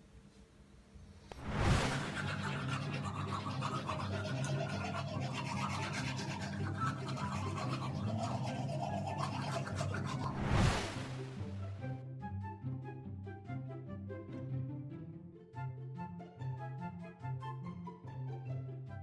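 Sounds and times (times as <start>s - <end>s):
swish sound effect: 1.3s - 4.6s, 10.1s - 11.8s
background music: 1.5s - 19.0s
toothbrush scrubbing teeth: 1.8s - 11.4s.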